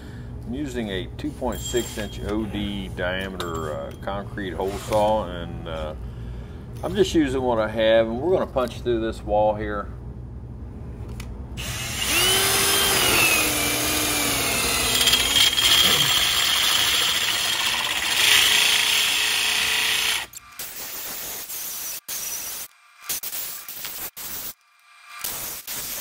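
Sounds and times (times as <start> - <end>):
power drill grinding into concrete: 11.6 - 20.4.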